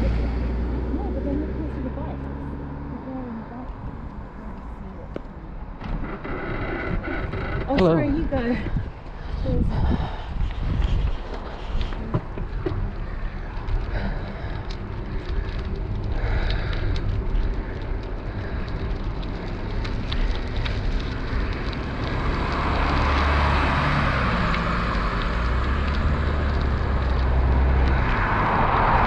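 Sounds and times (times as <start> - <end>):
car tyres hissing on asphalt: 0.0 - 3.3, 8.0 - 29.0
low rumble: 0.0 - 29.0
wind buffeting microphone: 0.0 - 29.0
small clicks: 11.0 - 28.2.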